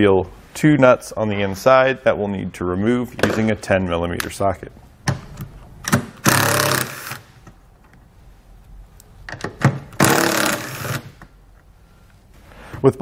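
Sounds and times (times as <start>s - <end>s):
impact driver bursts: 6.0s - 7.2s, 10.0s - 11.1s.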